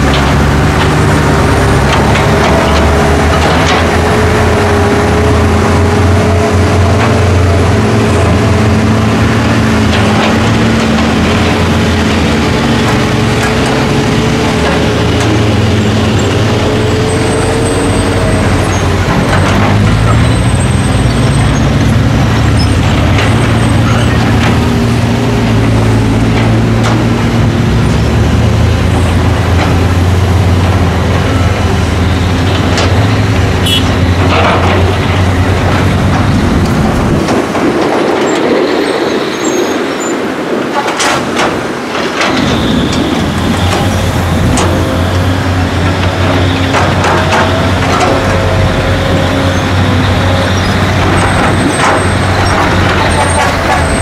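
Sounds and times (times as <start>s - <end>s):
diesel engines droning: 0.0s - 54.0s.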